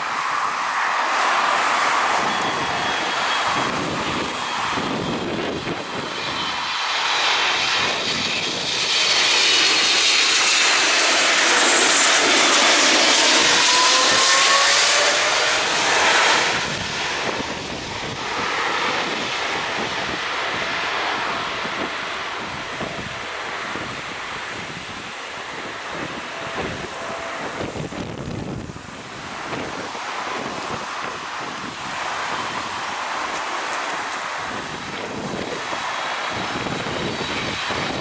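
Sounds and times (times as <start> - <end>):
jet engines roaring: 0.0 - 38.0
whining tones sliding down: 0.3 - 19.3.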